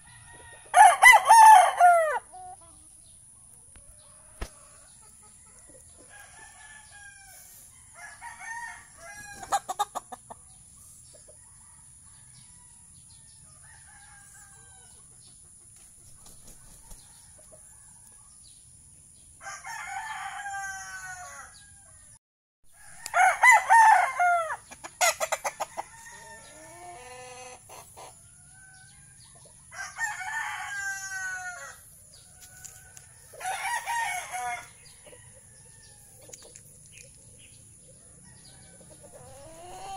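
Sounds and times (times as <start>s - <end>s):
roosters crowing: 0.0s - 2.6s, 4.0s - 10.1s, 11.4s - 15.1s, 19.4s - 22.1s, 22.7s - 36.3s, 37.8s - 39.9s
chickens clucking: 2.3s - 6.3s, 9.1s - 12.2s, 14.4s - 18.5s, 24.6s - 29.7s, 34.4s - 39.9s.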